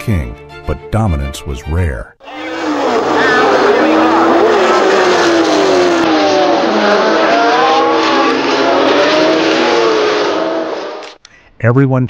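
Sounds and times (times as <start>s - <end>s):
racing car engines at high revs: 2.2s - 11.2s.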